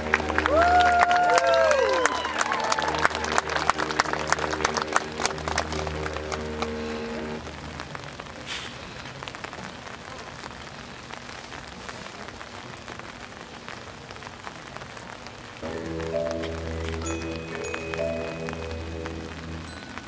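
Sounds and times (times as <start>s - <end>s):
marching band: 0.0s - 7.4s, 15.6s - 20.0s
steady rain falling: 0.0s - 20.0s
sharp raindrop hits: 7.4s - 20.0s.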